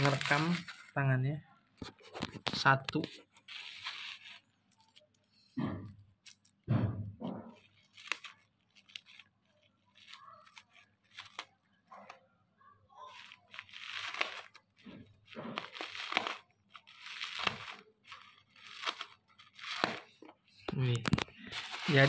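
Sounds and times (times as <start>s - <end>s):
scissors cutting bubble wrap: 0.0s - 0.9s, 3.0s - 5.2s, 7.3s - 12.1s, 13.1s - 20.2s, 21.5s - 22.0s
bubble wrap crinkling and tearing: 0.0s - 1.0s, 1.8s - 5.1s, 7.6s - 12.1s, 13.0s - 20.2s, 20.9s - 22.0s.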